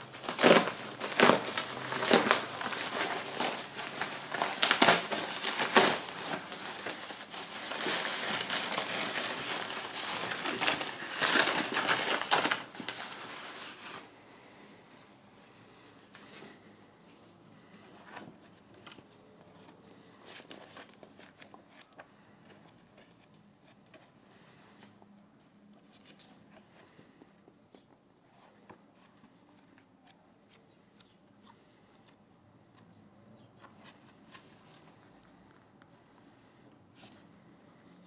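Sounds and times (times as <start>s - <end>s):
book pages turning: 0.0s - 14.6s, 16.2s - 27.2s, 27.8s - 32.9s, 33.6s - 35.7s
paper rustling and crinkling: 0.0s - 14.6s, 16.2s - 25.0s.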